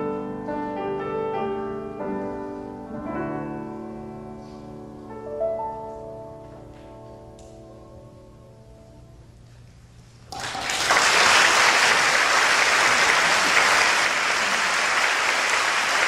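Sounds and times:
audience applause: 0:10.3 - 0:16.0.

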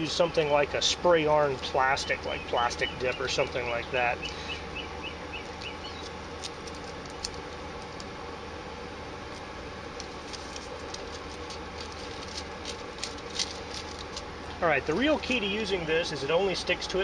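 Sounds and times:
steady background hum: 0:00.0 - 0:17.0
tape and plastic liner crinkling: 0:05.4 - 0:08.1, 0:09.3 - 0:14.6.

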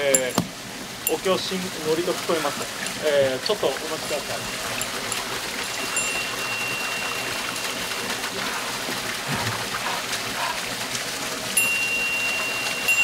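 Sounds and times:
waterfall rushing: 0:00.0 - 0:13.0
thin high steady tone: 0:04.0 - 0:10.7, 0:11.5 - 0:13.0.

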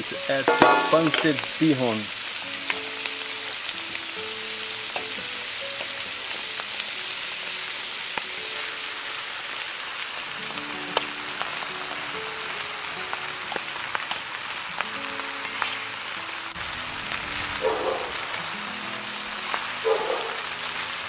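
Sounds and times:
food sizzling in a pan: 0:00.0 - 0:21.0
soft background music: 0:00.0 - 0:21.0.

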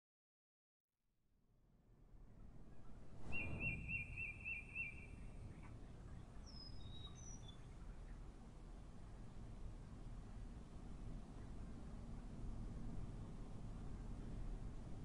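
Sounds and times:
low street rumble: 0:01.8 - 0:15.0
songbird trilling: 0:03.3 - 0:05.2
short high bird chirps: 0:03.3 - 0:05.3.

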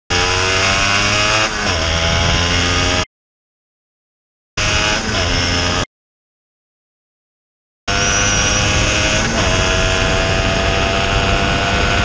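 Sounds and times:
motorcycle engine revving: 0:00.1 - 0:03.1, 0:04.6 - 0:05.9, 0:07.9 - 0:12.0.

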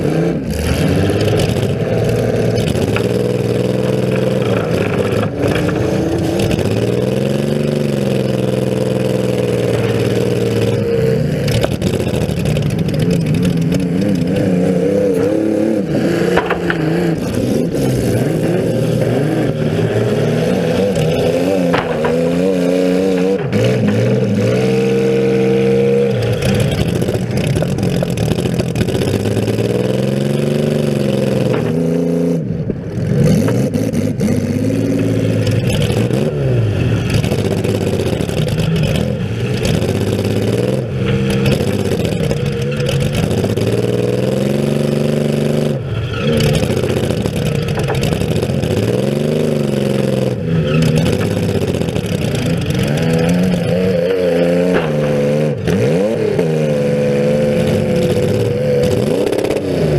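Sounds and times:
car engine revving: 0:00.0 - 0:59.9
short knocks and clatters: 0:03.9 - 0:06.6, 0:16.2 - 0:17.5, 0:21.0 - 0:24.7, 0:46.4 - 0:48.8, 0:50.8 - 0:56.5.

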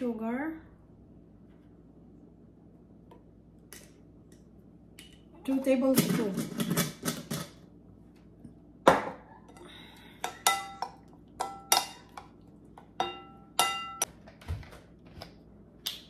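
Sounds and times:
metal spoon clinking ceramic bowl: 0:10.2 - 0:12.4, 0:13.0 - 0:14.1.

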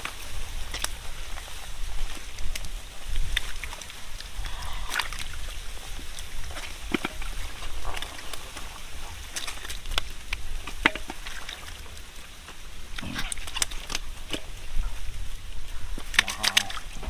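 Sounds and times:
fish flopping on mud: 0:00.0 - 0:17.0
hands grabbing fish in mud: 0:02.1 - 0:14.6, 0:15.9 - 0:17.0.

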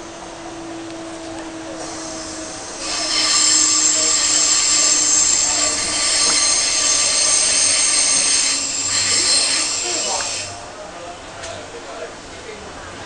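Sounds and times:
train wheels squealing: 0:01.0 - 0:10.6.

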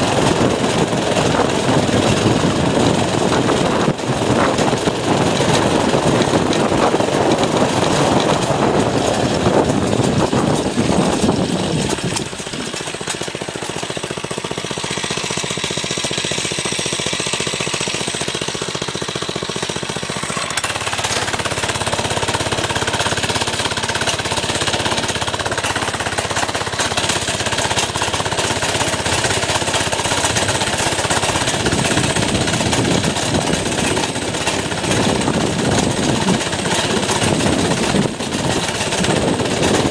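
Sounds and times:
wind noise: 0:00.0 - 0:12.8, 0:31.3 - 0:39.9
small engine running: 0:00.0 - 0:39.9
rattling: 0:00.1 - 0:39.9.

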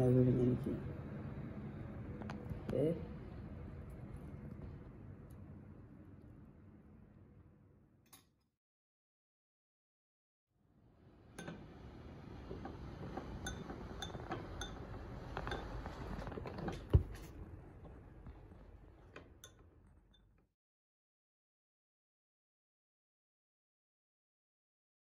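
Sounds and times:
metal spoon clinking glass bowl: 0:13.4 - 0:14.8.

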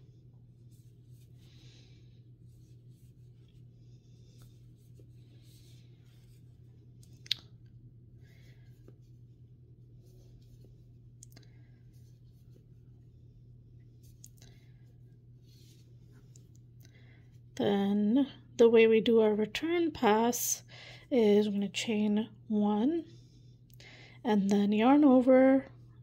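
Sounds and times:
yarn rustling on crochet hook: 0:00.0 - 0:07.1
steady low hum: 0:00.0 - 0:26.0.

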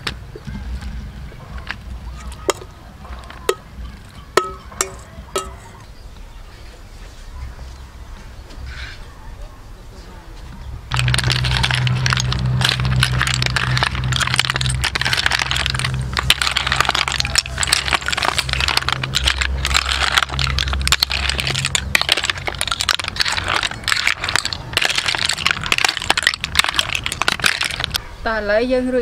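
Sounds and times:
snail shells clattering on metal tray: 0:10.9 - 0:28.1.

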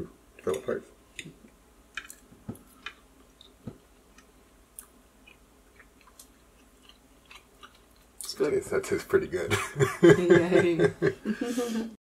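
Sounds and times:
quiet chewing: 0:01.2 - 0:08.4.

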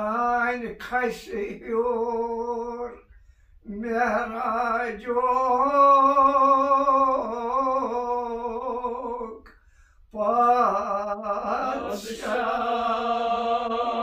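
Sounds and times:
men singing a chanted elegy: 0:10.2 - 0:14.0.

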